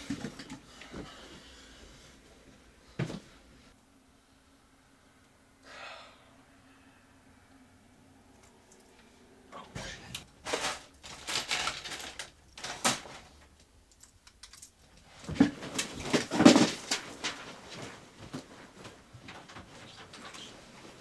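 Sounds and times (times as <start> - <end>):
small hard objects clattering: 10.4 - 14.8, 15.6 - 17.5.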